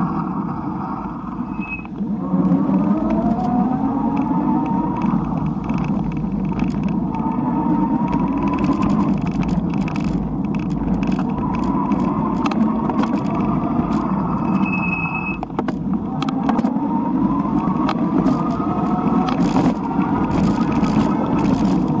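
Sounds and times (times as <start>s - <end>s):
high squeal: 0.0s - 2.0s, 14.0s - 15.4s
rising whines: 0.0s - 9.5s, 10.2s - 22.0s
cars overtaking: 0.0s - 22.0s
wind noise on microphone: 0.0s - 22.0s
clicks and rattles: 2.7s - 7.4s, 8.0s - 14.6s, 15.4s - 16.8s, 17.6s - 22.0s.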